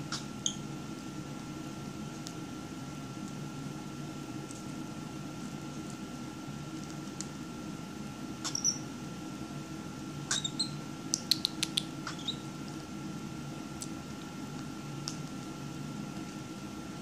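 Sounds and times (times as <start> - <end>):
bird high squeak: 8.5 - 8.8, 10.3 - 10.8, 12.1 - 12.4.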